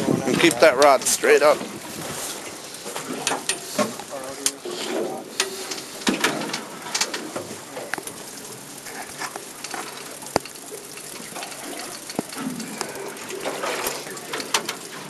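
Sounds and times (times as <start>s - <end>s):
wind and sea hiss: 0.0s - 15.0s
sharp clicks and knocks: 9.1s - 15.0s.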